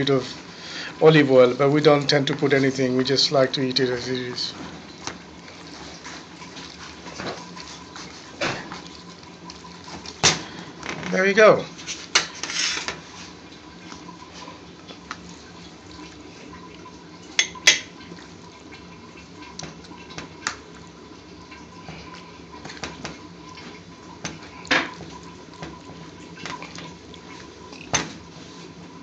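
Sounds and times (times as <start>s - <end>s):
faint steady hum: 0.0s - 29.0s.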